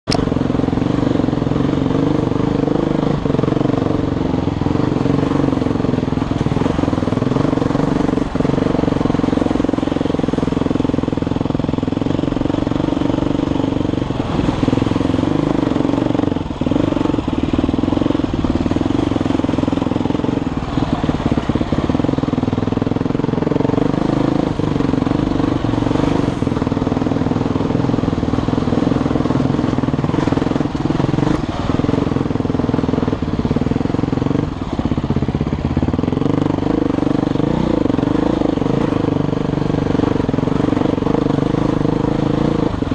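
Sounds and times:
dirt bike engine running: 0.0s - 42.9s.

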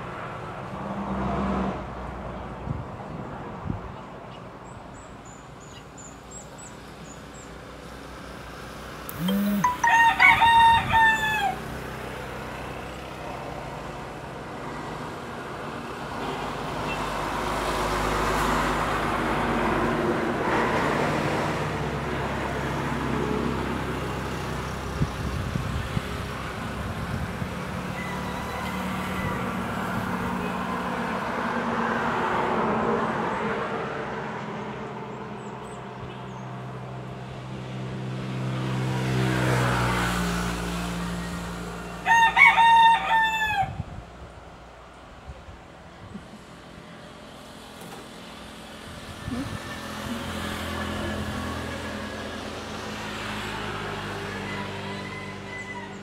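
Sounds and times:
outdoor noise: 0.0s - 56.0s
rooster crowing: 9.2s - 11.7s, 28.0s - 29.8s, 42.0s - 43.8s, 53.9s - 56.0s.

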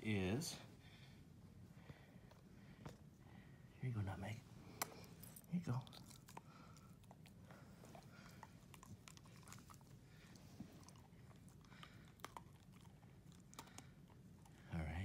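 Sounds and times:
dog chewing a treat: 4.7s - 14.8s
teeth clicks: 10.8s - 14.6s.

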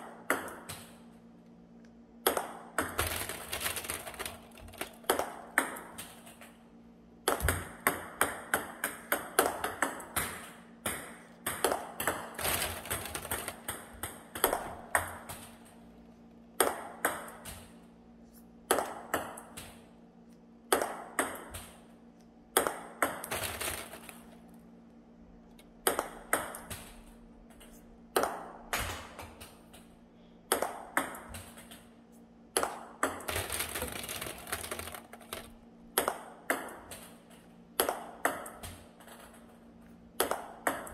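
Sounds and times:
table tennis ball bouncing: 0.0s - 1.0s, 2.2s - 6.6s, 7.2s - 15.7s, 16.6s - 17.8s, 18.7s - 19.9s, 20.7s - 21.9s, 22.5s - 24.3s, 25.8s - 29.9s, 30.5s - 31.9s, 32.6s - 39.5s, 40.2s - 40.9s
faint steady hum: 0.0s - 40.9s.

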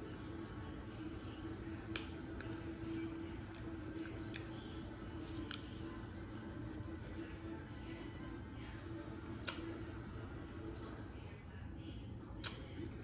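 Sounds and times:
steady hum: 0.0s - 13.0s
chewing and finger-licking: 1.6s - 6.0s, 9.4s - 9.8s
wet mouth smacks: 1.9s - 2.6s, 3.4s - 4.6s, 5.3s - 5.8s.

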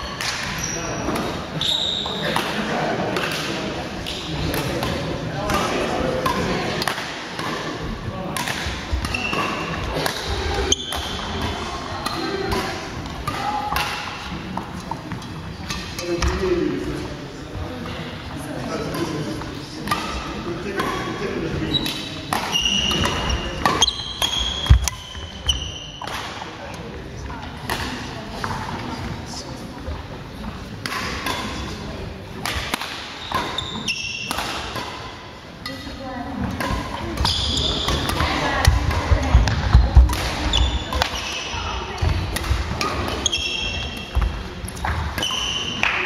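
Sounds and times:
rackets hitting shuttlecock: 0.1s - 1.4s, 2.2s - 16.5s, 18.8s - 26.9s, 27.5s - 28.8s, 30.5s - 46.0s
shoe squeak on wooden floor: 0.6s - 2.2s, 21.7s - 26.0s, 33.2s - 34.3s, 37.2s - 38.1s, 43.2s - 44.0s.

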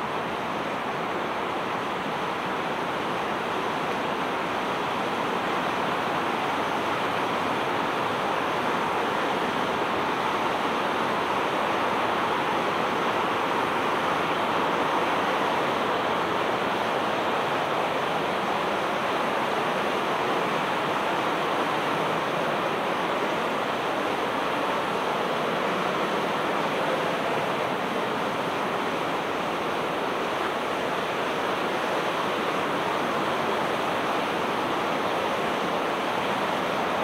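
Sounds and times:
river water rushing: 0.0s - 37.0s.

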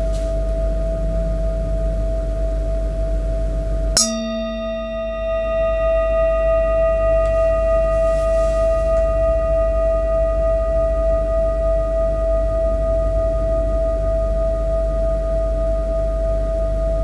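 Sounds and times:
metal singing bowl ringing: 3.9s - 17.0s.

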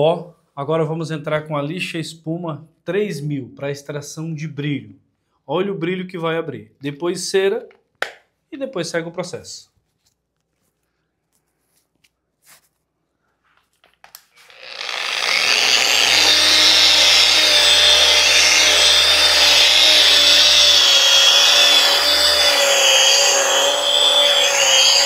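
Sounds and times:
electric polisher whining: 14.4s - 25.0s.

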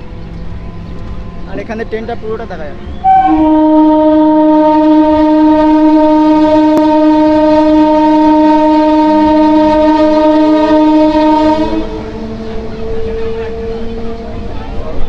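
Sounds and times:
train horn blast: 3.0s - 15.0s.

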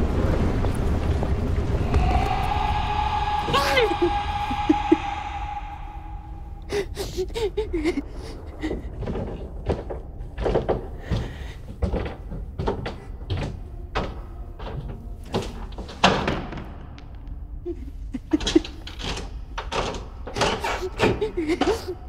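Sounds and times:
woman whimpering: 3.4s - 6.0s, 6.6s - 8.9s, 20.6s - 22.0s.

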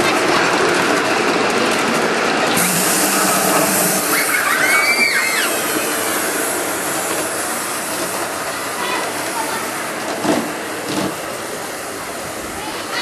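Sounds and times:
steam locomotive hissing: 2.0s - 13.0s
high rising and falling call: 2.6s - 6.1s.

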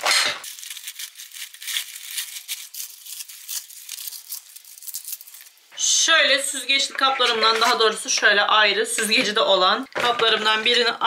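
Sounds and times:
lettuce leaves crinkling and snapping: 0.4s - 5.6s.

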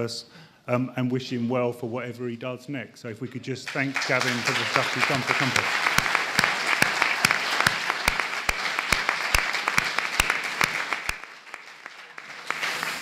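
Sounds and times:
audience applauding: 3.7s - 13.0s
close single person clapping: 4.2s - 13.0s.

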